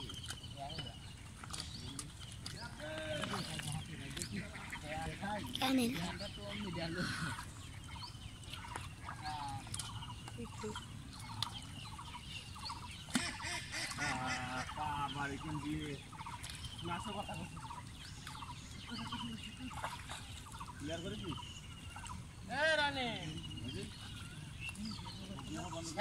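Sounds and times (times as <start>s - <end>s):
birds calling: 0.0s - 26.0s
person speaking: 5.4s - 6.2s.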